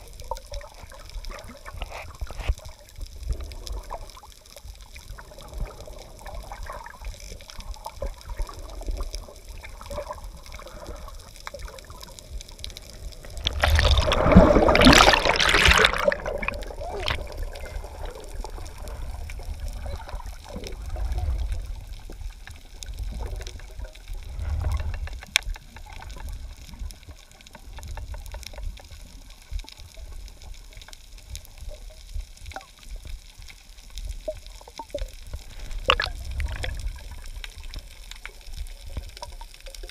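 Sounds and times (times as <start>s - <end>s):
underwater water movement rumble: 0.0s - 39.9s.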